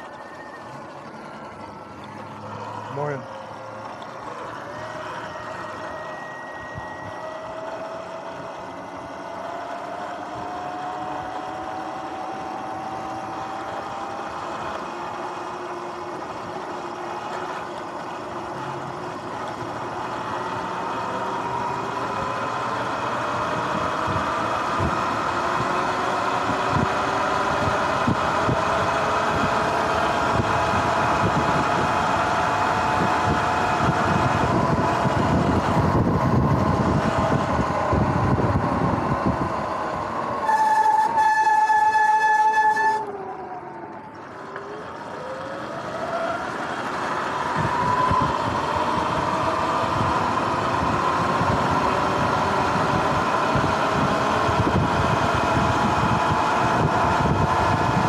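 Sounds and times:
electric motor whine: 0:00.0 - 0:58.0
wind buffeting microphone: 0:23.3 - 0:40.4, 0:47.2 - 0:58.0.

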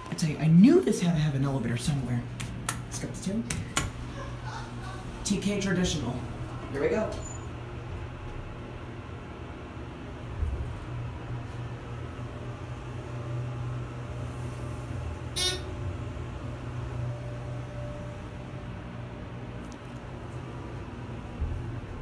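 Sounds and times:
elevator low hum: 0:00.0 - 0:22.0
elevator bell ding: 0:06.0 - 0:11.6, 0:12.4 - 0:18.3.

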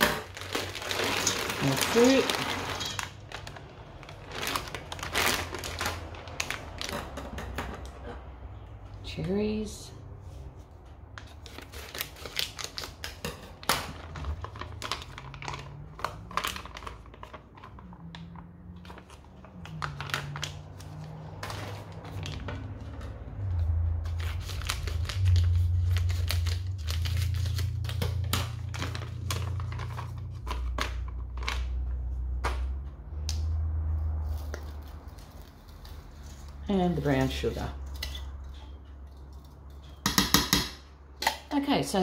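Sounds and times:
plastic packets crinkling: 0:00.0 - 0:07.2, 0:11.2 - 0:32.1.

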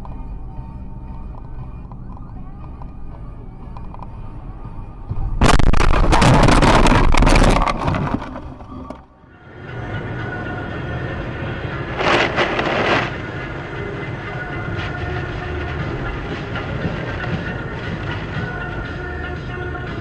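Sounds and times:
faint steady tones: 0:00.0 - 0:06.0, 0:08.1 - 0:20.0
car engine and tyre noise: 0:00.0 - 0:20.0
loud rushing crackling noise: 0:05.1 - 0:09.0, 0:09.6 - 0:19.3.

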